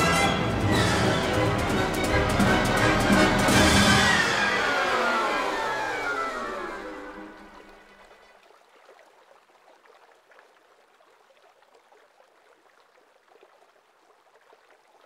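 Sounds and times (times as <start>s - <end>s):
river water trickling: 5.5s - 15.0s.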